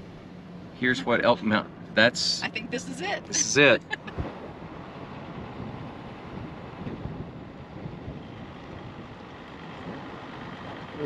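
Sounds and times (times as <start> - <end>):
diesel engine driving: 0.0 - 11.0
road noise: 0.0 - 11.0
wind on microphone: 4.0 - 9.2.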